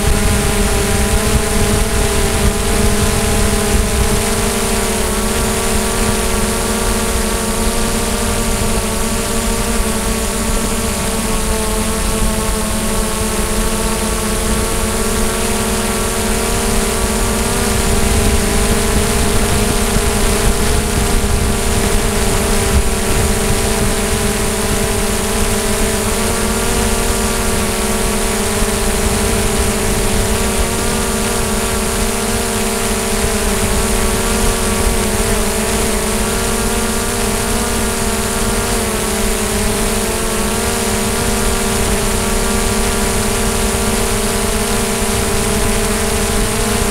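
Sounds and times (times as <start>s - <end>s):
drone propellers whining: 0.0s - 46.9s.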